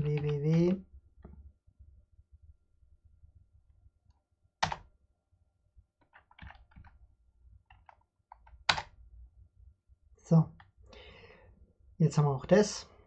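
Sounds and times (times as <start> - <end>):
keyboard typing: 4.6 - 4.8, 7.7 - 8.9.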